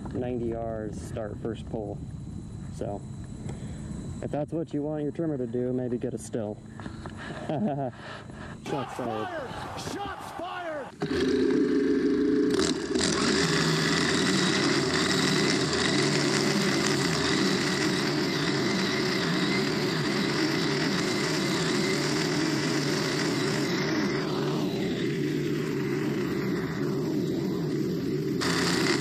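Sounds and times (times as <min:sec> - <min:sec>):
trimmer line cutting dry grass: 0:10.0 - 0:29.0
string trimmer engine at full throttle: 0:10.9 - 0:29.0.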